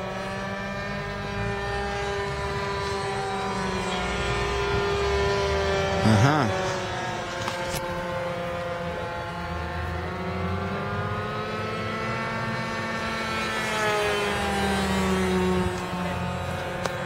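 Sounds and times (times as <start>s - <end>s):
model airplane engine droning: 0.0s - 17.0s.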